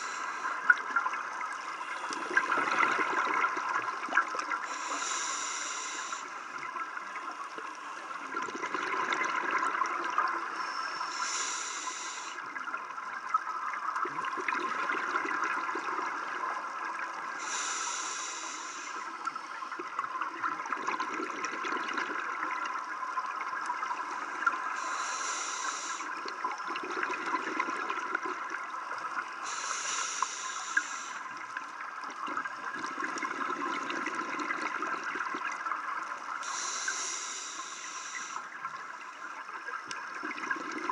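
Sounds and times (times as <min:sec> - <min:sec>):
regulator breathing hiss: 0:00.0 - 0:00.8, 0:04.6 - 0:06.6, 0:10.5 - 0:12.5, 0:17.3 - 0:19.6, 0:24.6 - 0:26.2, 0:29.4 - 0:31.4, 0:36.4 - 0:38.6
exhaled bubbles burbling: 0:00.0 - 0:04.8, 0:06.6 - 0:10.5, 0:12.7 - 0:17.4, 0:19.8 - 0:24.8, 0:26.1 - 0:29.3, 0:31.8 - 0:36.2, 0:39.4 - 0:40.9
crackling underwater hiss: 0:00.0 - 0:40.9.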